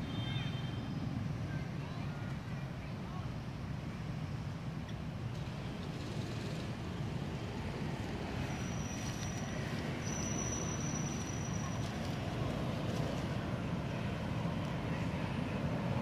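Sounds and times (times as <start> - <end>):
low outdoor rumble: 0.0 - 16.0.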